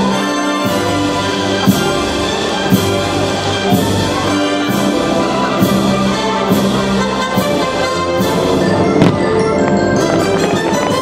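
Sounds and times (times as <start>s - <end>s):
orchestral music with brass: 0.0s - 11.0s
fireworks cracking: 8.2s - 11.0s.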